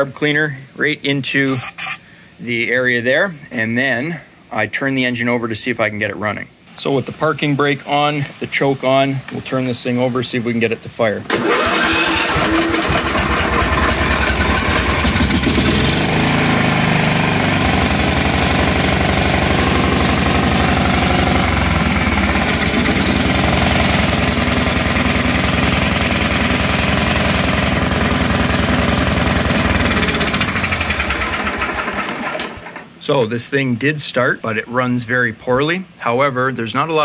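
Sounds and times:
mower engine running poorly: 11.3 - 32.9.

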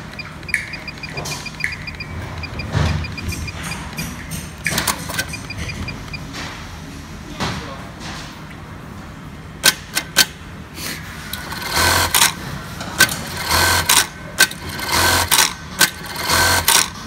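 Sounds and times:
sewing machine stitching bursts: 11.4 - 12.4, 13.0 - 17.0.

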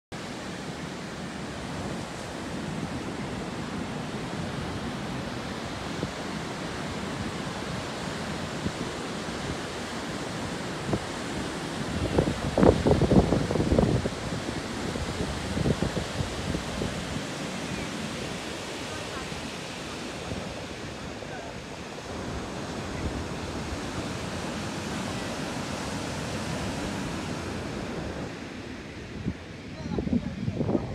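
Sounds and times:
sea surf breaking on beach: 0.2 - 30.9
wind buffeting microphone: 0.2 - 30.9.

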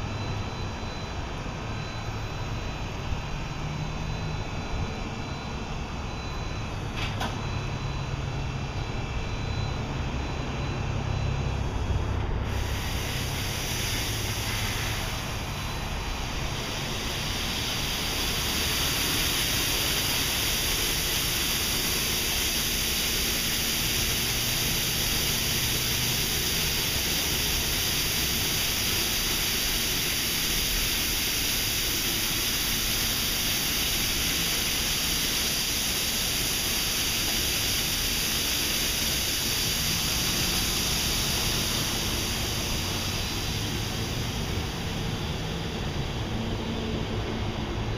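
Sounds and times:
low machine rumble: 0.0 - 47.9
water spraying onto car: 16.4 - 45.8.

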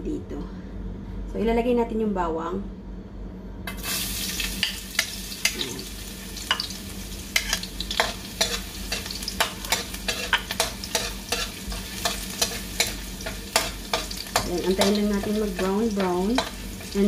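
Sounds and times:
garlic sizzling in oil: 3.7 - 17.0
spatula scraping and tapping pan: 7.4 - 17.0.

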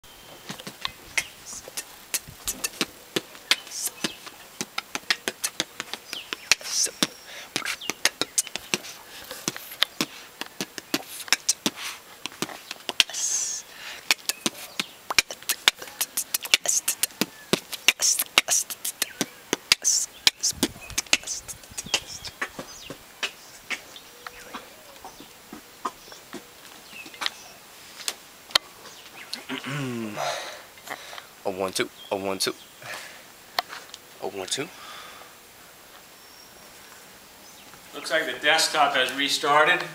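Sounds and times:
man beatboxing: 0.5 - 22.6.

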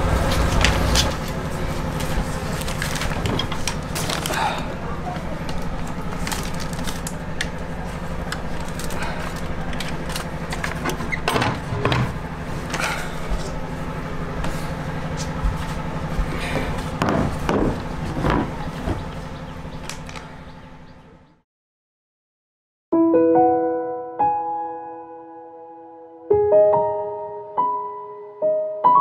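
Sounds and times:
steady low hum: 0.0 - 21.4
wooden knocks and clatter: 9.7 - 13.5, 15.1 - 19.2.

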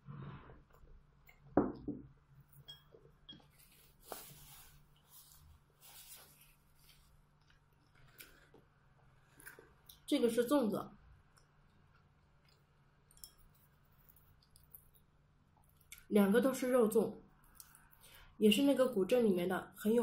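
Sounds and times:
paper tissue rustling: 3.4 - 7.4.

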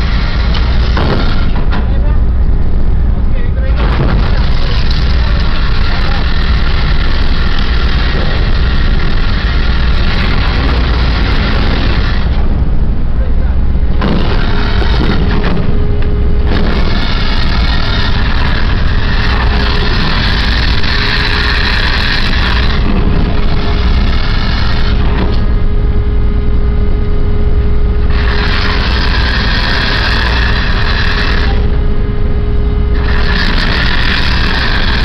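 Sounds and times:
winch machinery humming: 0.0 - 35.0
hissing rush: 3.8 - 25.5.

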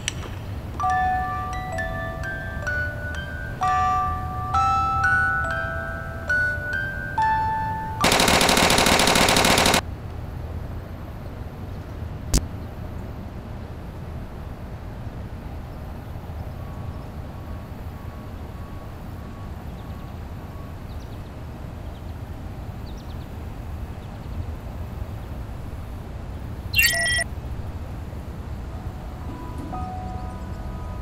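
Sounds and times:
faint bird chirps: 26.7 - 27.3
short high peeps: 26.8 - 27.2.

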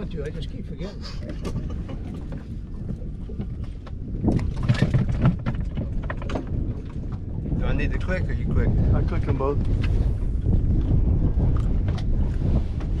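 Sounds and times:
wind rumbling on microphone: 0.0 - 13.0
knocks and clatter: 1.3 - 7.3.

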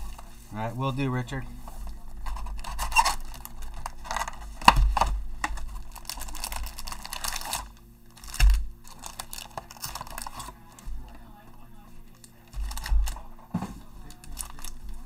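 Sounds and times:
foil packs rustling: 0.0 - 15.0
crinkling and tearing wrapper: 1.8 - 11.2, 12.1 - 13.3, 14.0 - 15.0.

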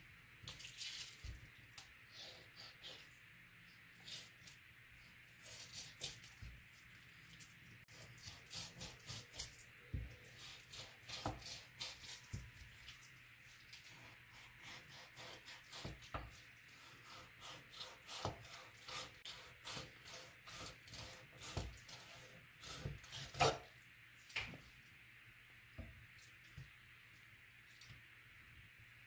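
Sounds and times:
knife scraping on cutting board: 16.8 - 23.7.

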